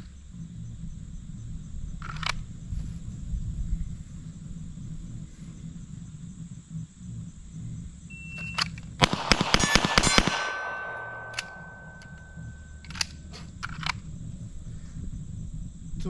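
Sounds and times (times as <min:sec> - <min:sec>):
steel plate ringing: 0:09.0 - 0:12.8
pistol shots: 0:09.0 - 0:13.2.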